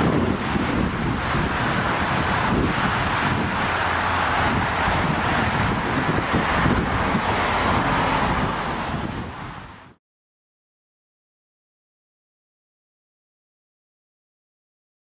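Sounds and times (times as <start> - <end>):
even hiss: 0.0 - 9.9
low rumble: 0.0 - 9.9
insect trill: 0.0 - 10.0.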